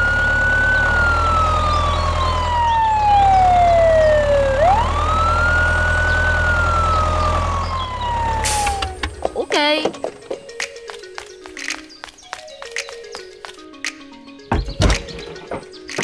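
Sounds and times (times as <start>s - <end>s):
emergency siren wailing: 0.0s - 9.2s.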